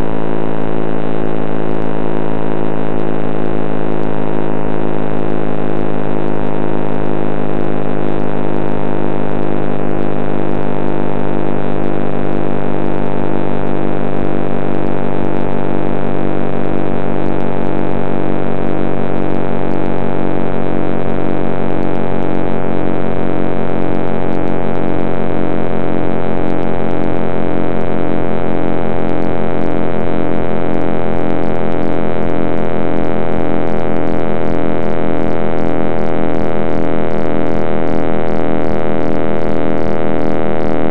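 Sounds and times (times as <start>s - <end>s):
pulsing tone: 0.0s - 40.9s
synthesized drone: 0.0s - 40.9s.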